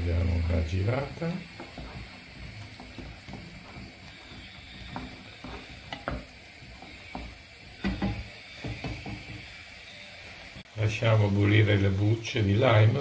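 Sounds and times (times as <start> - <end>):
syrup simmering hiss: 0.0 - 13.0
wooden spoon scraping saucepan: 0.4 - 9.5.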